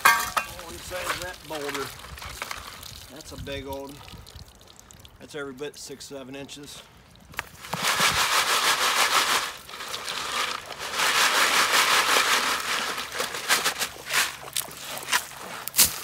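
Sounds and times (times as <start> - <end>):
stones grating and clinking: 0.0 - 2.8, 9.6 - 16.0
water sloshing in a bucket: 0.0 - 5.3, 6.6 - 16.0.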